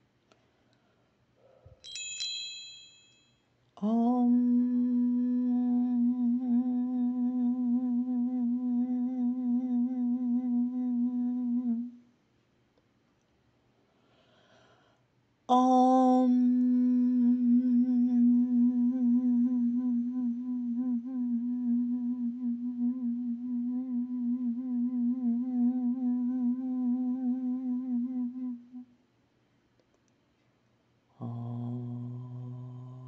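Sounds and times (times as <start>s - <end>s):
small bell ringing: 1.8s - 3.5s
person humming long note: 3.8s - 12.0s, 15.5s - 28.9s, 31.2s - 33.0s.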